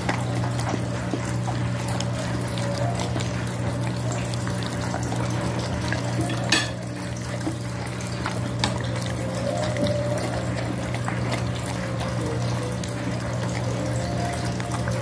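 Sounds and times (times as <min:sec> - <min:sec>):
dog licking and chewing food: 0:00.0 - 0:15.0
clink against a plate: 0:06.3 - 0:06.8.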